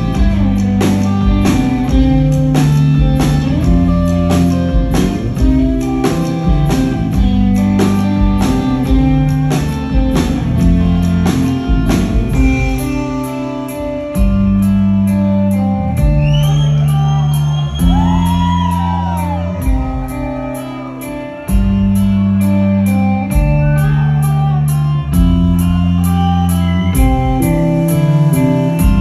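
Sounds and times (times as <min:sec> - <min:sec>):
lead electric guitar bending notes: 0:00.0 - 0:29.0
sustained bass notes: 0:00.0 - 0:29.0.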